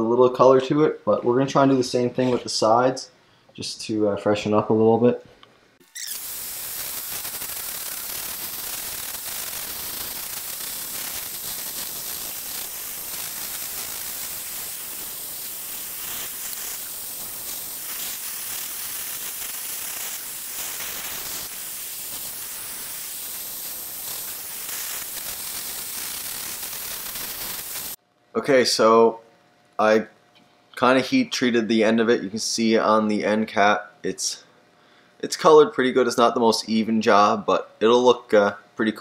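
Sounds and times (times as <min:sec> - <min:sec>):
gas torch hissing: 0:05.8 - 0:28.0.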